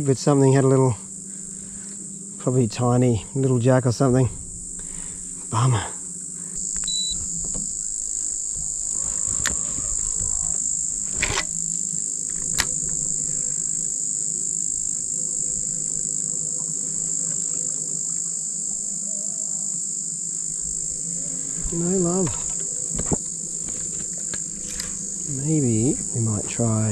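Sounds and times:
faint low hum: 0.0s - 18.2s
insects buzzing: 0.0s - 26.9s.

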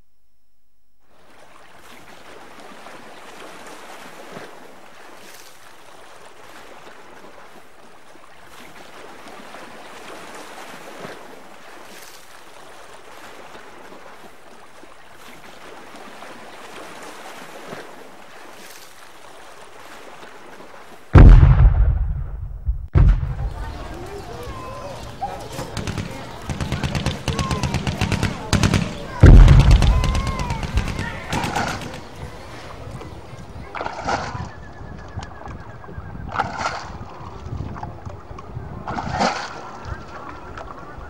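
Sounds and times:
rushing water: 1.1s - 22.1s, 23.0s - 41.0s
faint splashes: 1.1s - 41.0s
loud low thump: 21.2s - 23.8s, 25.8s - 31.8s.

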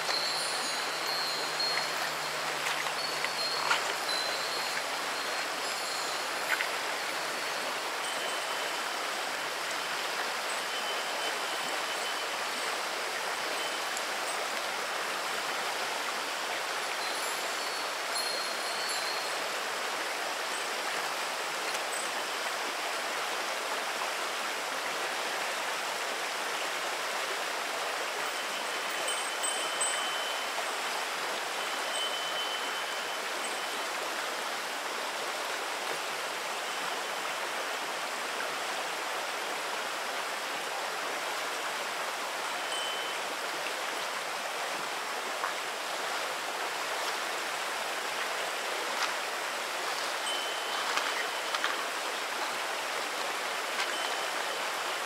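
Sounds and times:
wind chime ringing: 0.0s - 9.0s, 9.8s - 12.7s, 17.0s - 19.5s, 28.3s - 30.8s, 31.6s - 33.9s, 42.6s - 43.3s, 50.1s - 52.0s, 53.8s - 54.7s
river babbling over pebbles: 0.0s - 55.0s.

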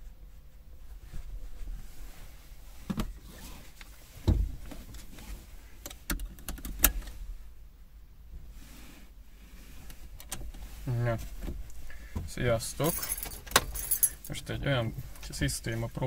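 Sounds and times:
knocks and rustling in a car: 0.8s - 7.2s, 9.8s - 14.0s.

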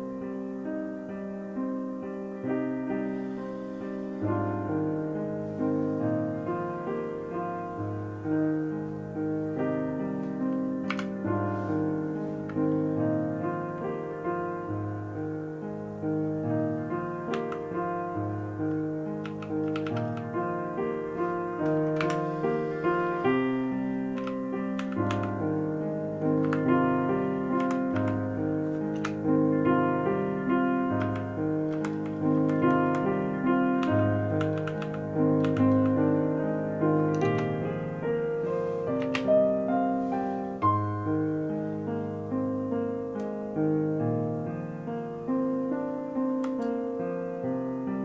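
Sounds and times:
slow piano notes: 0.0s - 48.0s
sharp clicks: 10.8s - 11.2s, 19.2s - 20.3s, 21.6s - 22.3s, 24.1s - 25.4s, 27.6s - 29.2s, 33.8s - 36.0s.

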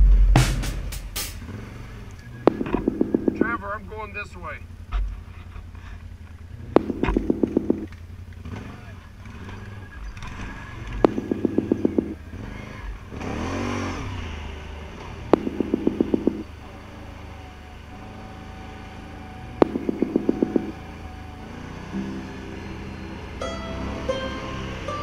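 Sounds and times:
atv engine running: 0.0s - 25.0s
rapid even ticking: 0.6s - 13.7s, 14.5s - 21.2s.

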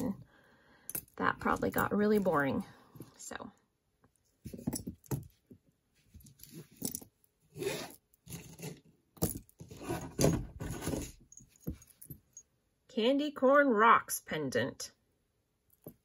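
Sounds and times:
metal jewelry clinking and rattling: 0.8s - 3.3s, 4.5s - 5.5s, 6.1s - 12.5s.

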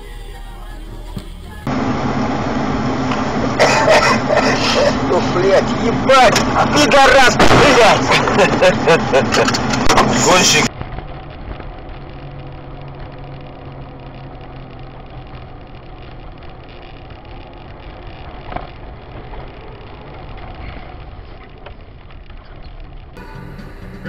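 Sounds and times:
car engine and tyre drone: 0.0s - 24.0s.

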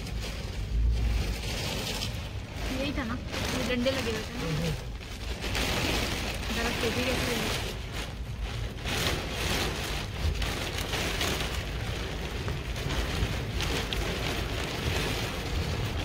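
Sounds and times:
deep steady rumble: 0.0s - 16.0s
heavy rain on car: 0.0s - 16.0s.

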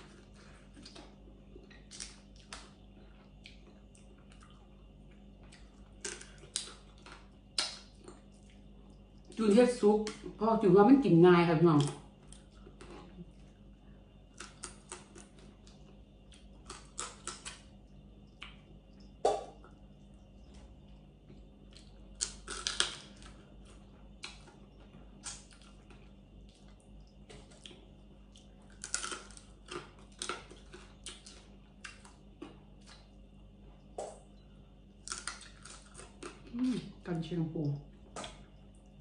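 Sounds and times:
crab shell cracking: 22.2s - 23.3s, 28.7s - 31.3s.

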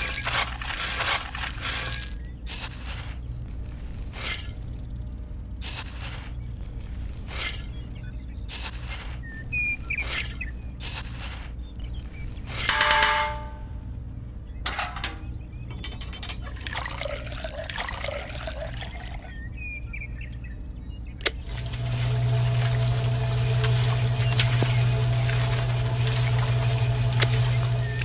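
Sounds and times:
water pouring into can: 0.0s - 2.2s, 16.4s - 19.3s, 21.3s - 28.0s
metal spoon scraping sand: 0.0s - 3.3s, 5.6s - 6.4s, 8.5s - 9.3s, 9.9s - 11.6s
metallic ring: 12.7s - 13.8s, 14.7s - 16.5s
small electric motor humming: 21.3s - 28.0s.

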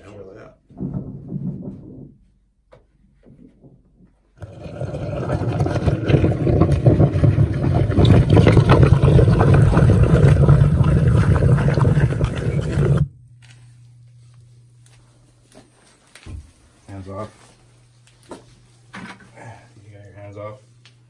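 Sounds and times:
drill grinding through soil and rock: 4.4s - 13.1s
faint low hum: 5.2s - 21.0s.

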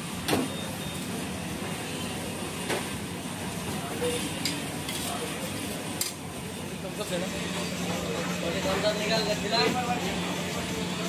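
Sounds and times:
flatbread frying in oil: 0.0s - 7.3s.

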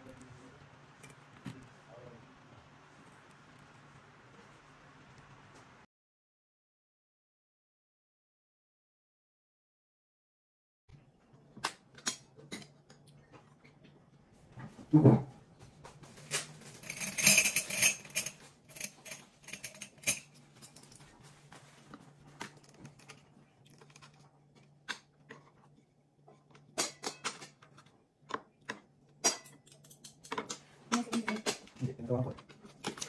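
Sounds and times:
faint low hum: 0.0s - 5.9s
cutlery and dishes clinking: 11.6s - 13.1s, 16.1s - 25.6s, 26.4s - 33.0s.

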